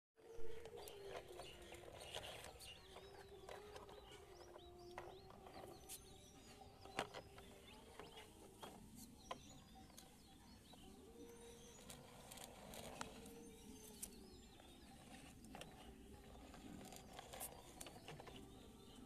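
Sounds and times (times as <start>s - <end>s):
small birds chirping: 0.2s - 19.0s.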